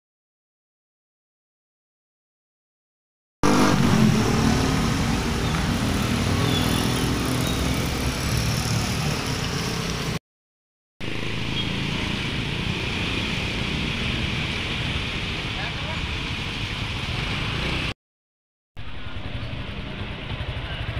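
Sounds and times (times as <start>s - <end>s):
vehicle engine running: 18.8s - 20.9s.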